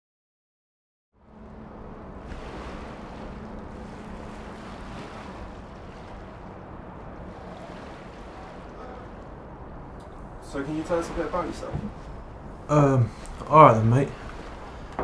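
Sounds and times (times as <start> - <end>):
wind: 1.1 - 15.0
river water: 1.2 - 15.0.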